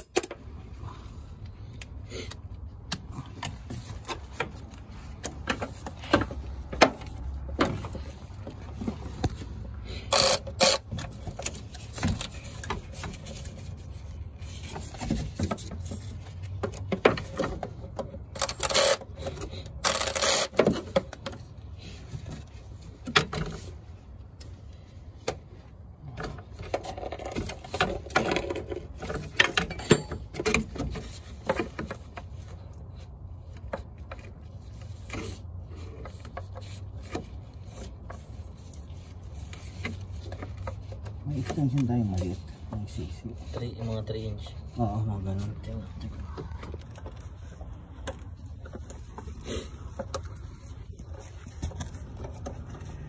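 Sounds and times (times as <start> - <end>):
ratchet wrench clicking: 10.1 - 10.8, 19.8 - 20.6
metal tool clanks and scrapes: 29.3 - 31.0.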